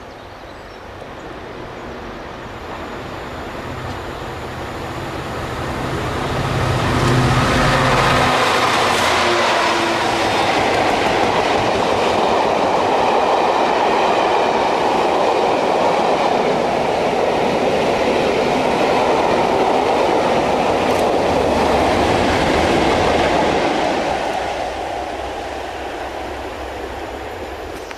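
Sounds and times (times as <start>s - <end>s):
diesel locomotive engine: 0.0s - 27.9s
train wheels rumbling on rails: 0.6s - 27.9s.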